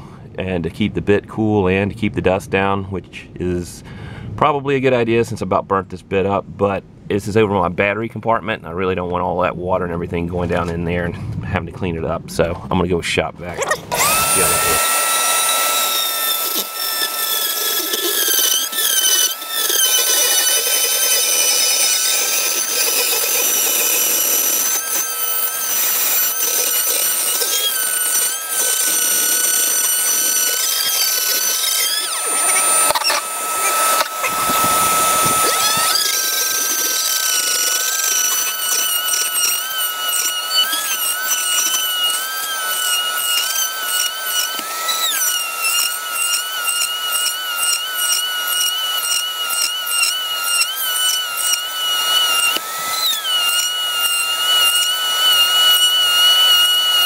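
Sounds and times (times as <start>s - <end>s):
shop vacuum running: 13.4s - 57.0s
rotary tool whining: 13.6s - 57.0s.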